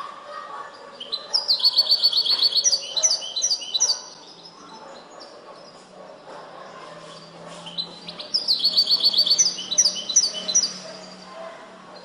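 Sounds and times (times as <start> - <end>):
goldfinch singing: 1.0 - 5.2, 7.6 - 11.2.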